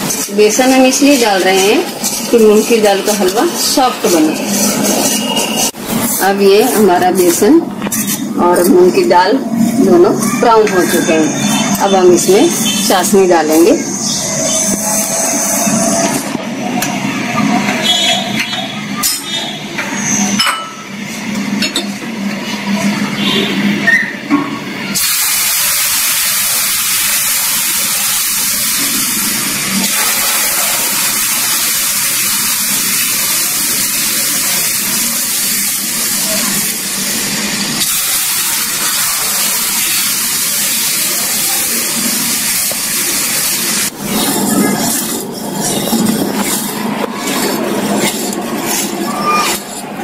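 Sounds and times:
loud sizzling hiss: 0.0s - 17.5s, 24.8s - 50.0s.

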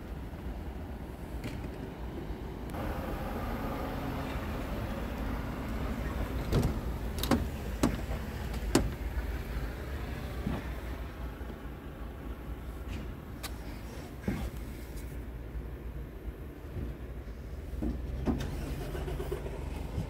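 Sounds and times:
knocks and clicks climbing into truck: 6.4s - 9.1s.

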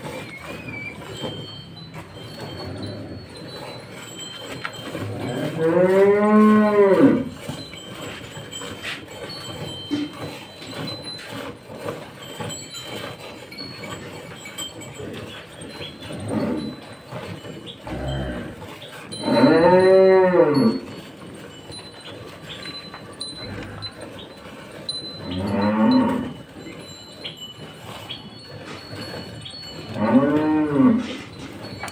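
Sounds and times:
cow mooing: 4.9s - 7.5s, 16.1s - 16.8s, 17.7s - 21.0s, 23.3s - 24.2s, 25.2s - 26.5s, 29.8s - 31.3s.

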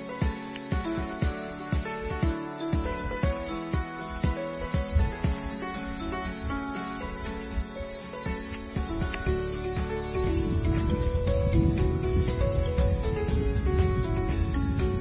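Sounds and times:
cicadas buzzing: 0.0s - 15.0s
low thumps: 8.3s - 15.0s.

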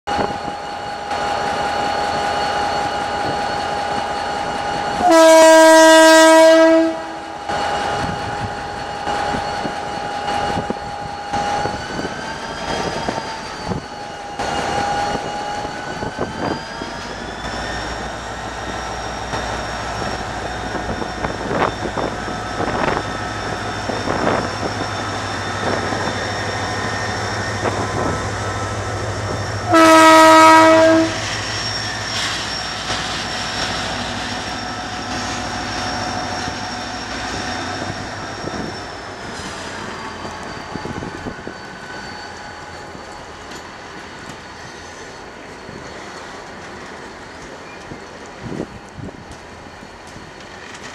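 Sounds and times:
diesel locomotive engine running: 0.1s - 50.9s
locomotive horn blast: 5.0s - 7.3s, 29.6s - 31.3s.

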